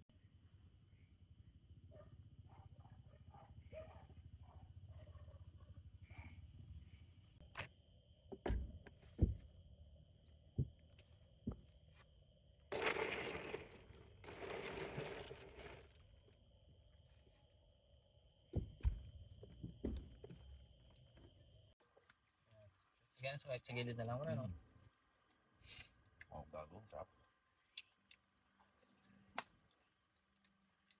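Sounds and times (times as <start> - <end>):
night insects chirping: 0.1 - 30.9
rummaging in a hard cooler: 12.7 - 16.0.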